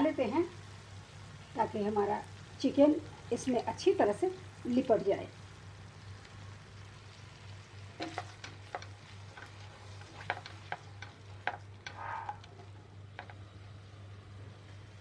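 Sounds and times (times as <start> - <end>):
faint sizzle: 0.0 - 15.0
spatula tapping pan: 8.0 - 13.5.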